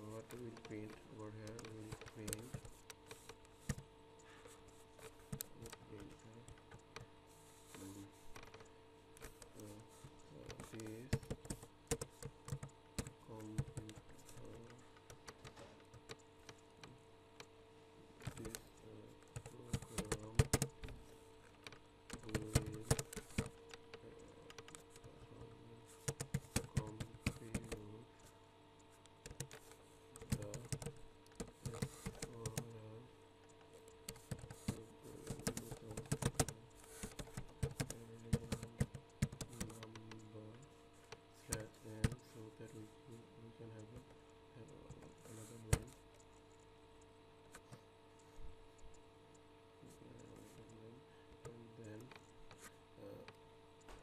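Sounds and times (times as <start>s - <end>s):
computer keyboard typing: 0.0s - 3.9s, 5.0s - 7.1s, 7.7s - 17.5s, 18.2s - 28.3s, 29.0s - 42.8s
faint steady hum: 0.0s - 54.0s.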